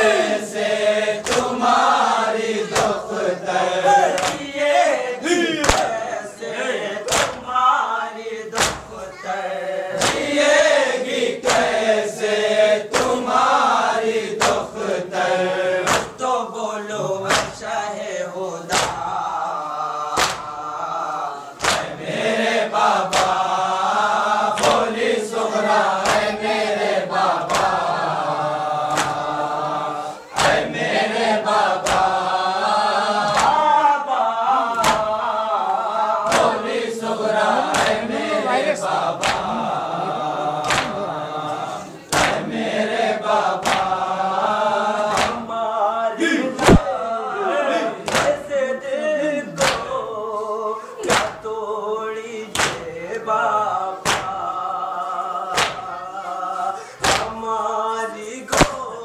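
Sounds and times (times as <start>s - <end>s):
men chanting together: 0.0s - 59.0s
hands slapping chests: 1.2s - 1.7s, 2.7s - 3.1s, 4.0s - 4.6s, 5.6s - 6.0s, 7.1s - 7.5s, 8.6s - 9.0s, 9.9s - 10.4s, 11.4s - 11.8s, 12.9s - 13.3s, 14.4s - 14.7s, 15.8s - 16.3s, 17.2s - 17.7s, 18.7s - 19.2s, 20.1s - 20.6s, 21.6s - 22.0s, 23.0s - 23.6s, 24.6s - 24.9s, 26.0s - 26.4s, 27.4s - 27.9s, 28.9s - 29.3s, 30.4s - 30.7s, 31.8s - 32.2s, 33.2s - 33.6s, 34.7s - 35.2s, 36.2s - 36.6s, 37.6s - 38.1s, 39.2s - 39.6s, 40.6s - 41.0s, 42.1s - 42.5s, 43.6s - 44.0s, 45.0s - 45.5s, 46.6s - 46.9s, 48.0s - 48.4s, 49.6s - 50.0s, 51.0s - 51.5s, 52.5s - 52.9s, 54.0s - 54.4s, 55.5s - 55.9s, 57.0s - 57.4s, 58.5s - 58.8s.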